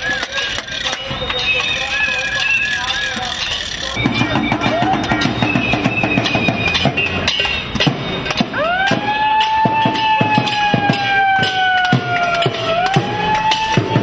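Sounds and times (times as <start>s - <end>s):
sharp drum beats: 4.0s - 14.0s.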